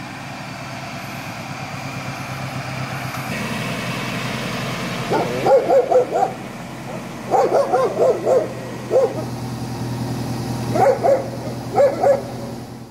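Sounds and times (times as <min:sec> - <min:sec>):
dog barking: 0:05.1 - 0:09.2, 0:10.7 - 0:12.5.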